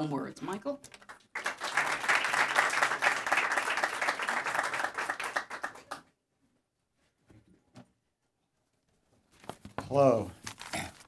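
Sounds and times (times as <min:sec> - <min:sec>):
audience applauding: 0:01.0 - 0:06.1.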